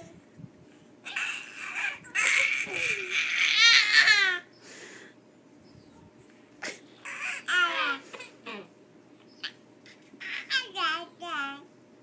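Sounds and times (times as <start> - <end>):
toddlers babbling: 1.0 - 4.5, 7.0 - 8.7, 9.9 - 11.6.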